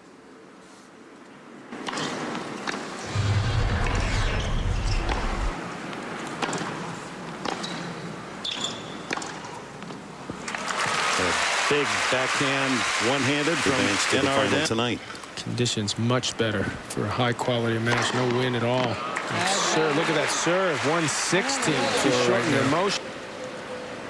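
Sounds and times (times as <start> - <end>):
crowd hum: 3.0 - 5.6
low rumble: 3.0 - 5.6.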